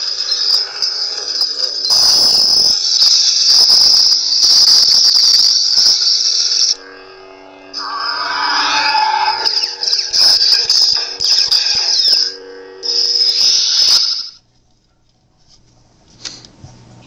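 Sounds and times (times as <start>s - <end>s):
high-pitched lightsaber hum: 0.0s - 14.4s
rough noisy sound effect: 7.3s - 11.9s.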